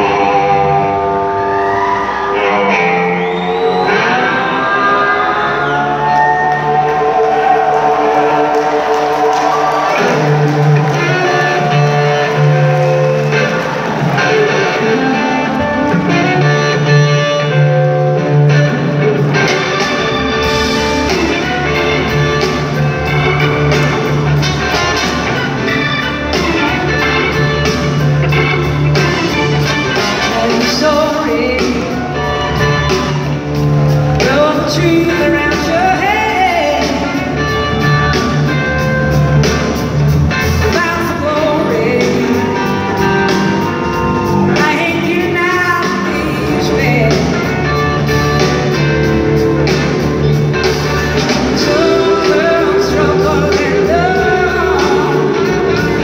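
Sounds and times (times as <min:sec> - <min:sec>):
bass guitar: 0:00.0 - 0:56.0
drums: 0:00.0 - 0:56.0
electric guitar: 0:00.0 - 0:56.0
lead singer singing: 0:29.2 - 0:33.3, 0:34.0 - 0:37.8, 0:40.5 - 0:48.7, 0:51.0 - 0:56.0.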